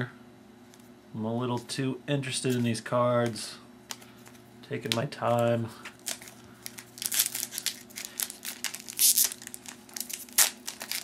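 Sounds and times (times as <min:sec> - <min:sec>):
foil wrapper tearing and crinkling: 0:05.9 - 0:11.0
wrapper sharp snap: 0:05.9 - 0:11.0.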